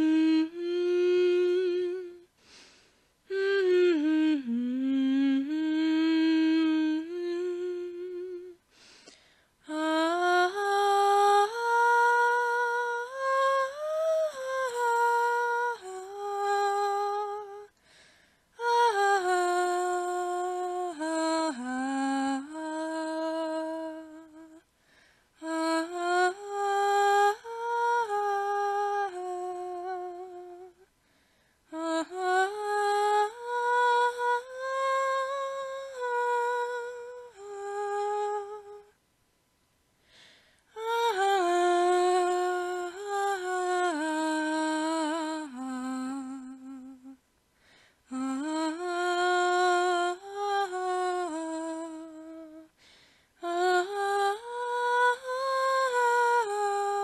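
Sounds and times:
slow wordless melody: 0.0 - 2.7.

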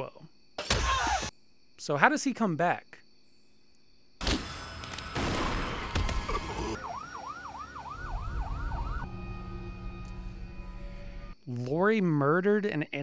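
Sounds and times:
siren in fast yelp: 6.7 - 11.4.

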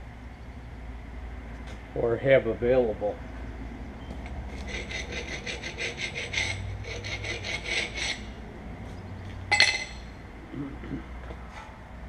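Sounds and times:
emery cloth scraping steel shaft: 4.2 - 8.4.

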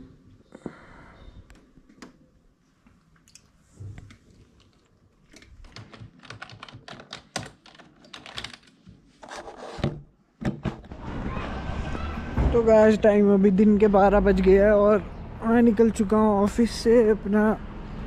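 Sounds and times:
typing on computer keyboard: 4.6 - 8.8.

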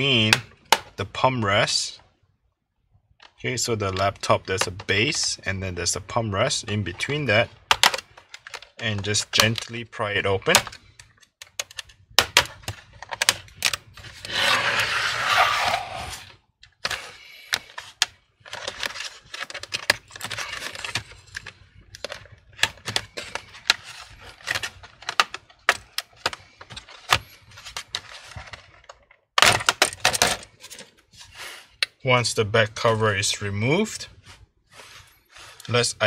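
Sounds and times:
plastic cover clicks and knocks: 7.6 - 8.7
plastic clips clicking and cracking: 7.7 - 9.8.

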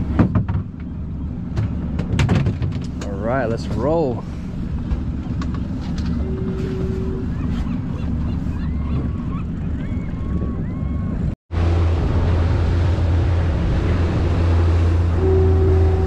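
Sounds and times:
sea water: 0.0 - 16.0
wind buffeting microphone: 1.6 - 16.0
faint short squeaks: 5.9 - 8.7.

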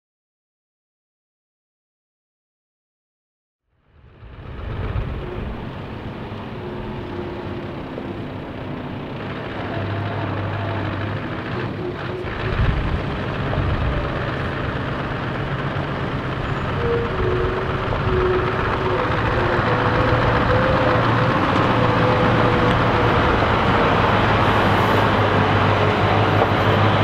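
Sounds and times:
diesel engines rumbling: 3.9 - 27.0
trucks driving over gravel: 4.2 - 27.0.

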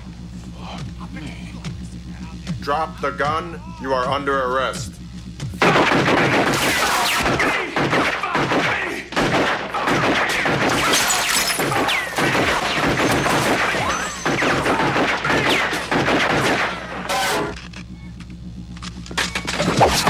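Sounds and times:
gunshots: 5.6 - 17.6
glass smashing: 10.7 - 12.2.

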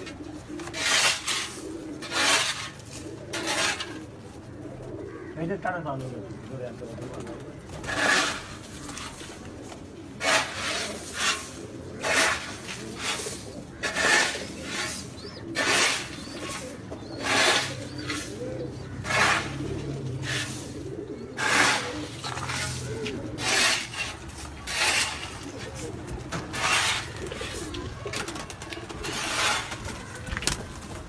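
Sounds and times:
pigeons cooing: 0.0 - 31.0
rasping rub: 0.7 - 3.9, 10.2 - 15.0, 15.6 - 27.6, 29.0 - 29.8.

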